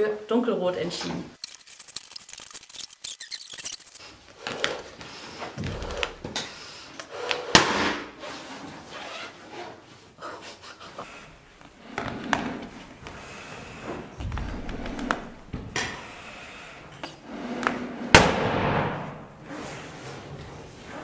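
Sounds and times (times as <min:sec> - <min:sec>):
rubber balloon squeaks: 0:01.4 - 0:04.9.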